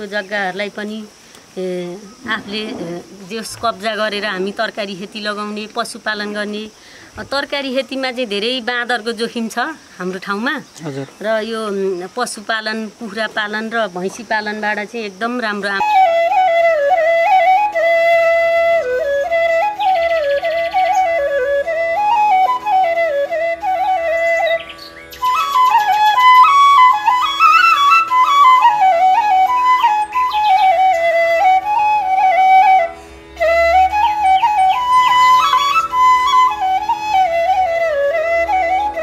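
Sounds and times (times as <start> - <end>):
solo flute melody: 15.6 - 39.0.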